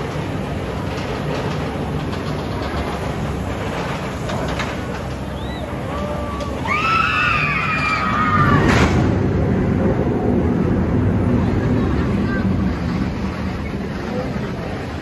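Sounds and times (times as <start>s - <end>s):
roller coaster car rumbling on track: 0.0s - 15.0s
riders screaming: 5.4s - 8.8s.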